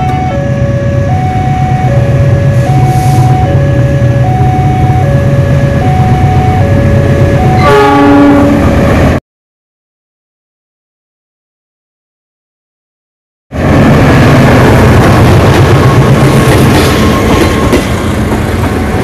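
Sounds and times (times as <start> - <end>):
locomotive horn: 0.0 - 6.7, 7.4 - 8.8
two-tone crossing alarm: 0.0 - 8.8.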